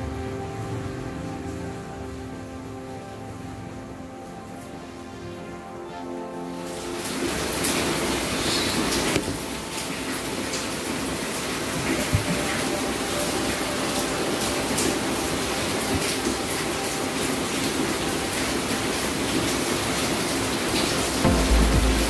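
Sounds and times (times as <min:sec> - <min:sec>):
steady rushing noise: 0:06.4 - 0:22.0.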